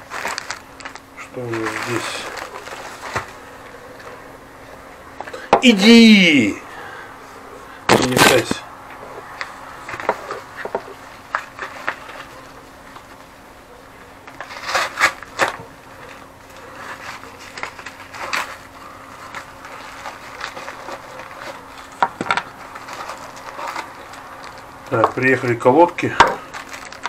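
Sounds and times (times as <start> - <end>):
plastic mailer crinkling and tearing: 0.0 - 4.2, 7.9 - 8.6, 9.4 - 13.3, 14.2 - 27.0.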